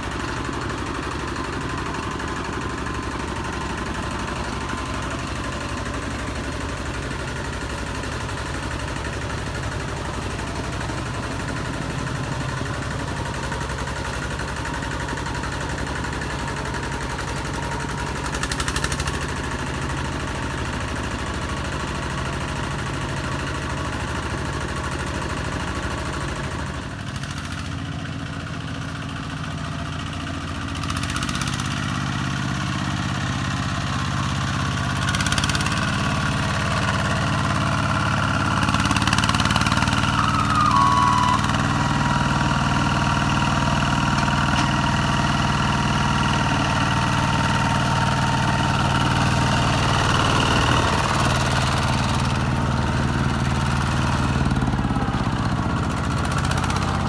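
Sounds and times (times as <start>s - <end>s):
diesel tractor engine running: 0.0s - 57.0s.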